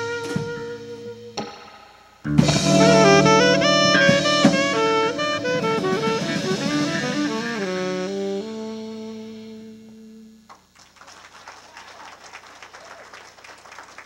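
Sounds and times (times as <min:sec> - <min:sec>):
jazz combo playing: 0:00.0 - 0:10.4
drum kit hits: 0:01.4 - 0:08.1.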